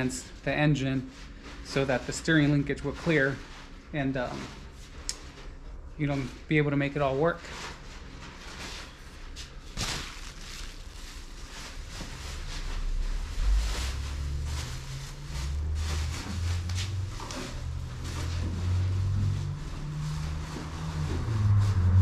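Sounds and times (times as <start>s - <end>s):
low uneven rumble: 0.0s - 22.0s
plastic bag rustling: 7.3s - 21.9s.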